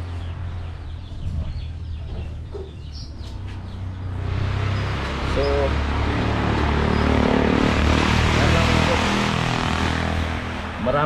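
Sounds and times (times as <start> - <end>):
chickens clucking: 1.2 - 3.6.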